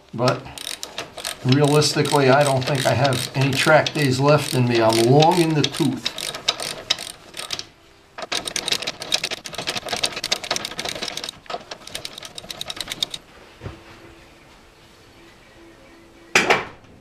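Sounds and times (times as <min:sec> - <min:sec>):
socket ratchet clicking: 0:00.3 - 0:13.2.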